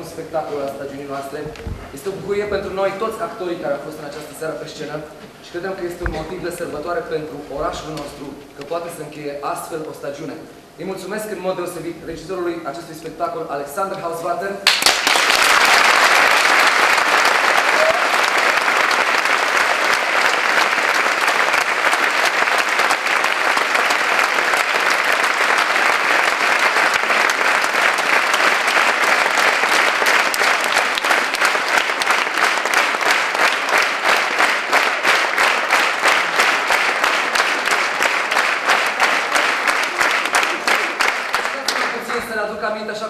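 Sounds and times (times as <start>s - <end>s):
audience applauding: 14.6s - 42.3s
rhythmic clapping in unison: 14.6s - 42.3s.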